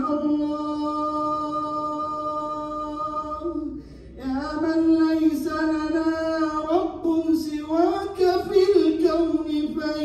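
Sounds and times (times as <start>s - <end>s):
breath: 3.7s - 4.2s
man chanting melodically: 4.2s - 10.0s.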